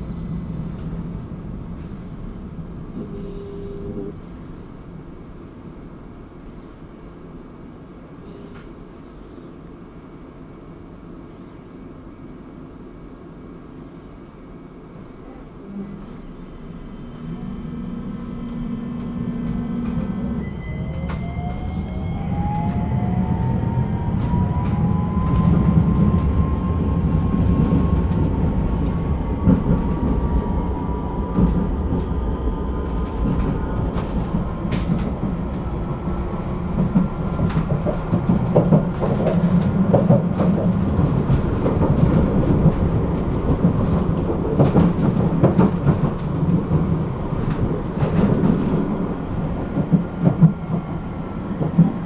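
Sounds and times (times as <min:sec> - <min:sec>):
tram wheels rumbling on rails: 0:00.0 - 0:08.9, 0:14.8 - 0:52.0
track clicks and clacks: 0:17.2 - 0:52.0.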